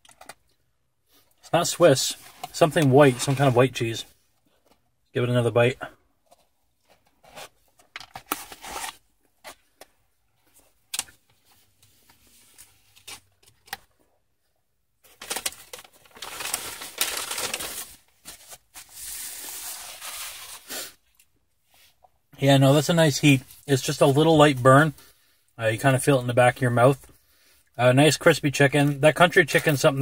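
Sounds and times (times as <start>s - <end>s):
cardboard box and paper rustling: 15.1s - 20.7s.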